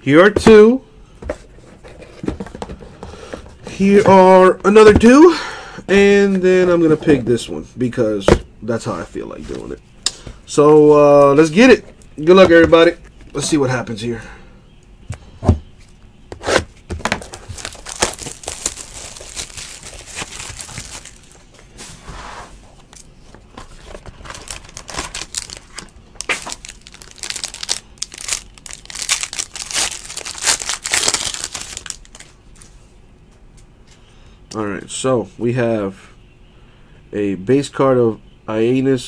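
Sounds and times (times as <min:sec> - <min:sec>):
plastic wrap tearing: 0:16.5 - 0:21.4, 0:24.3 - 0:32.2
foil pack ripping: 0:17.0 - 0:21.4, 0:24.3 - 0:32.2.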